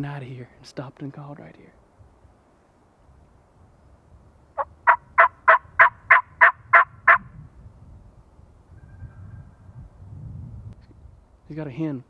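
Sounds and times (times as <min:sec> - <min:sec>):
turkey yelps on a mouth call: 0:04.6 - 0:07.2.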